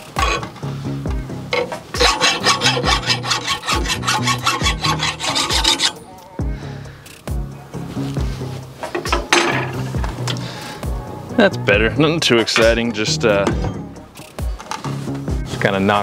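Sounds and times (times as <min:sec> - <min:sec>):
file scraping steel: 0:00.0 - 0:00.6, 0:01.5 - 0:06.0
background music with steady beat: 0:00.0 - 0:16.0.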